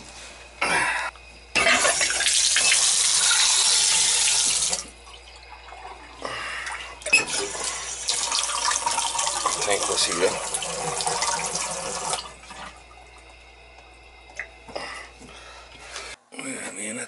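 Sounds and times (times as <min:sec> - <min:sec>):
water running from faucet: 0:01.6 - 0:14.6.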